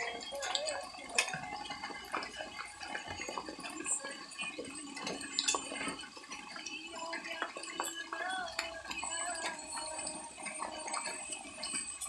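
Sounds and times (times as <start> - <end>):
light clicks and clinks: 0.0 - 12.0
water dripping and trickling: 0.0 - 12.0.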